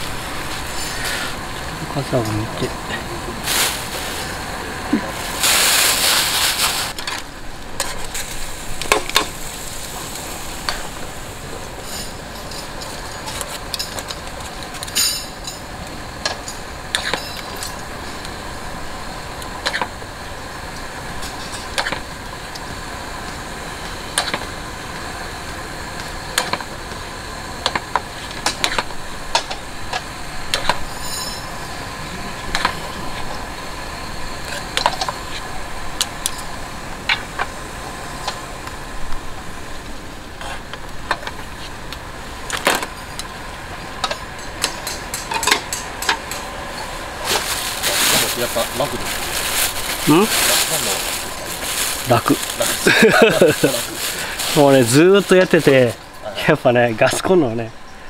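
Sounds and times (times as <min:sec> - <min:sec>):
water boiling: 0:00.0 - 0:57.2
loud hiss of pasta in water: 0:03.3 - 0:07.0, 0:07.9 - 0:12.2, 0:46.9 - 0:56.0
gas stove burner running: 0:06.8 - 0:56.5.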